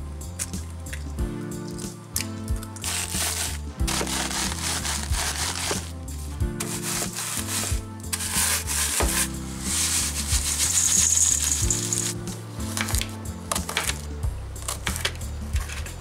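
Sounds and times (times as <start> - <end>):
crackers crushed in plastic bag: 2.8 - 5.9.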